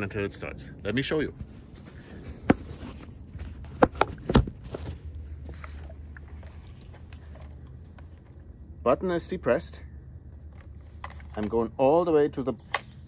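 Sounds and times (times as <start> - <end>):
low steady hum: 0.0 - 13.0
camera handling knocks: 3.8 - 4.8.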